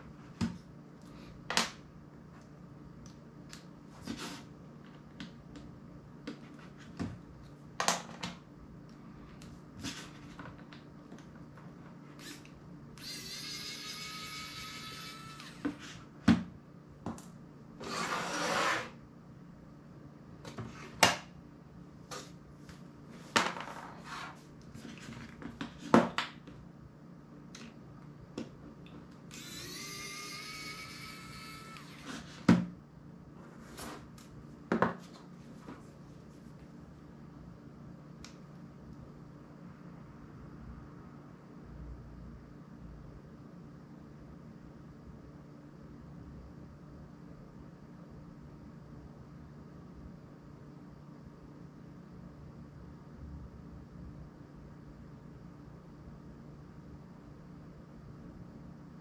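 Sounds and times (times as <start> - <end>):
electric screwdriver motor whirring: 12.2 - 15.8, 29.3 - 32.2.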